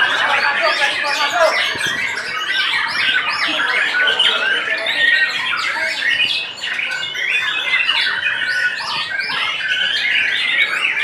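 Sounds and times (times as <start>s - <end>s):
caged songbirds singing: 0.0s - 11.0s.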